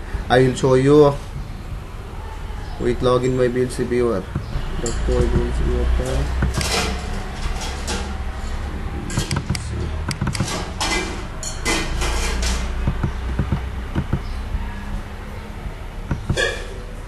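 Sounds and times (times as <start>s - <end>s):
steady low hum: 0.0s - 11.2s, 12.0s - 17.0s
handling knocks: 4.2s - 5.7s, 6.3s - 7.4s, 12.6s - 15.1s
computer mouse clicking: 9.2s - 10.5s, 12.8s - 14.3s.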